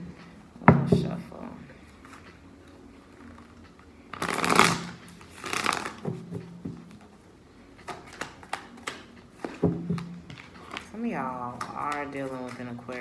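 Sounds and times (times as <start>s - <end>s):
cards shuffling: 3.2s - 7.1s, 7.8s - 13.0s.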